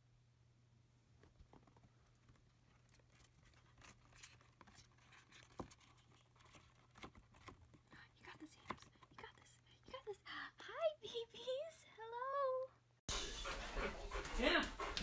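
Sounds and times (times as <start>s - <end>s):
claws scratching on plastic: 2.3s - 8.0s.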